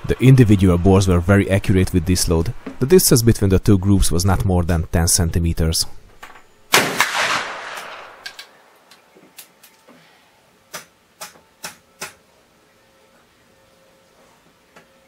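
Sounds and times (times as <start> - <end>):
rifle shot echoing: 6.7 - 8.8.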